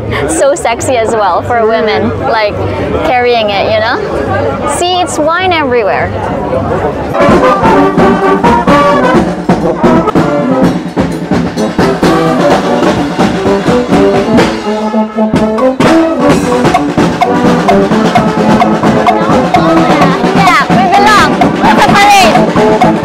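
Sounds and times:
brass band playing: 0:07.0 - 0:23.0
drum beats: 0:07.1 - 0:23.0.

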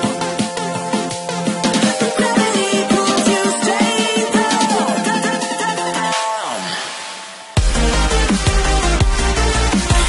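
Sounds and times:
electronic dance music: 0:00.0 - 0:10.0
heavy bass drop: 0:07.6 - 0:10.0
steady drum beat: 0:07.6 - 0:10.0.

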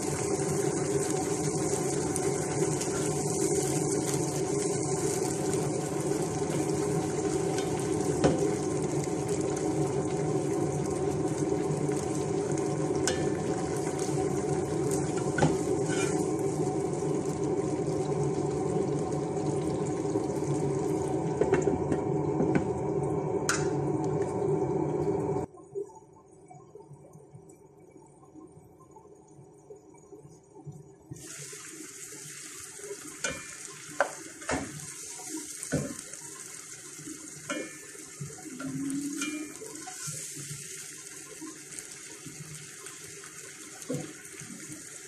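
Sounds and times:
food sizzling in a frying pan: 0:00.0 - 0:23.9, 0:31.1 - 0:45.0
spatula scraping a pan: 0:15.2 - 0:16.4.

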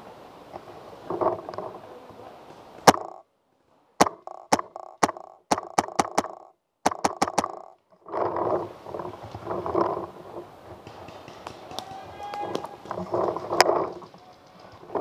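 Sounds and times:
rough handling noise: 0:00.4 - 0:03.2, 0:04.0 - 0:15.0
paintball marker popping: 0:02.9 - 0:03.2, 0:04.0 - 0:07.8.

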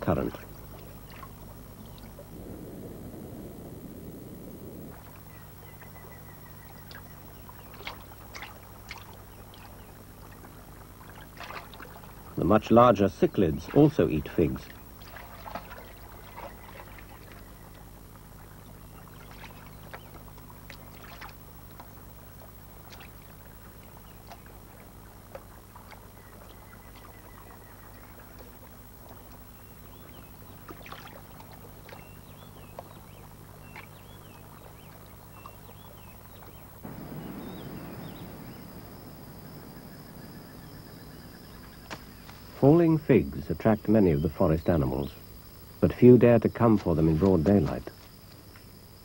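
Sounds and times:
high insect drone: 0:00.0 - 0:49.0
low steady hum: 0:00.0 - 0:49.0
fish splashing in water: 0:04.9 - 0:12.4, 0:14.8 - 0:29.6, 0:30.3 - 0:35.9, 0:36.8 - 0:42.5
short chirping calls: 0:35.3 - 0:42.7.

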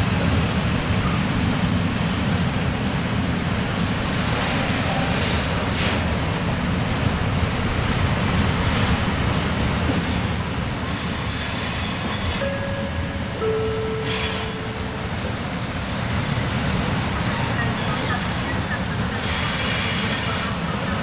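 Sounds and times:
train wheels rumbling over rails: 0:00.0 - 0:21.0.

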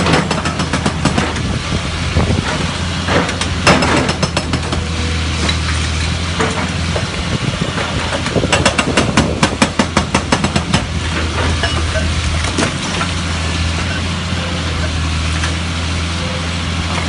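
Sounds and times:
hydraulic breaker hammering rock: 0:00.0 - 0:05.6, 0:06.3 - 0:13.2
diesel engine running: 0:00.0 - 0:17.0.

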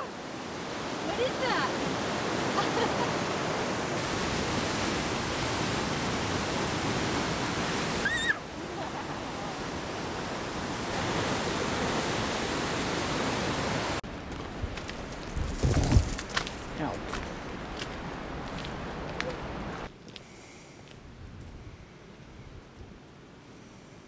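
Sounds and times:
river roaring: 0:00.0 - 0:15.0, 0:15.7 - 0:19.9.

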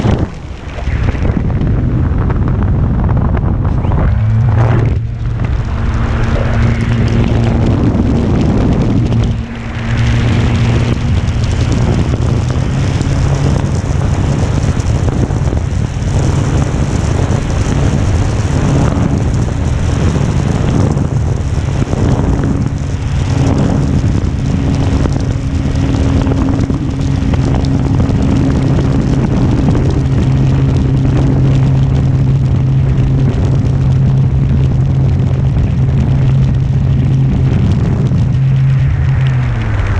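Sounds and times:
wind noise: 0:00.0 - 0:39.9.

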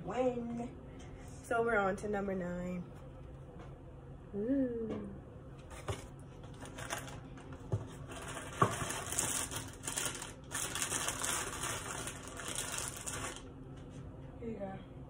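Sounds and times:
plastic bag crinkling: 0:06.5 - 0:07.3, 0:08.0 - 0:13.5.

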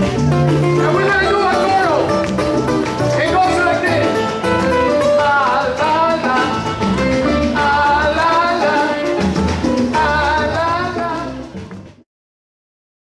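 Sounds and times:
percussion beat: 0:00.0 - 0:12.0
person singing: 0:04.8 - 0:11.5.

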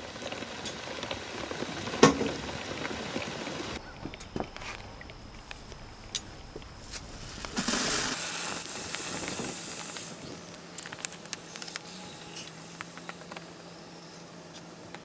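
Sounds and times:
sharp crackles: 0:00.0 - 0:13.7
hot metal hissing in water: 0:07.2 - 0:10.3.

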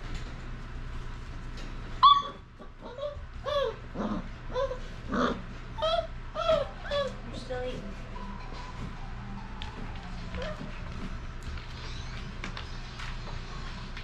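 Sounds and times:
puppies crying: 0:02.0 - 0:07.3.

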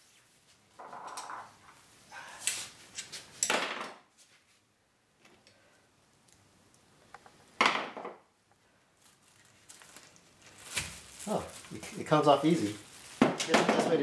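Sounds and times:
plastic bag rustling: 0:08.9 - 0:14.0.

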